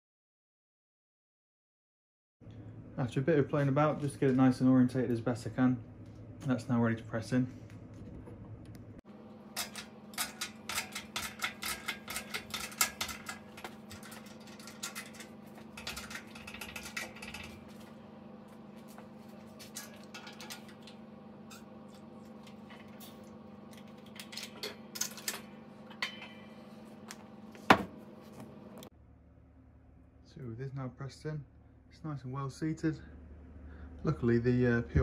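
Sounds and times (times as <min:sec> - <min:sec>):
steady low hum: 0:02.4 - 0:35.0
jack pump metallic clicks: 0:09.5 - 0:17.8.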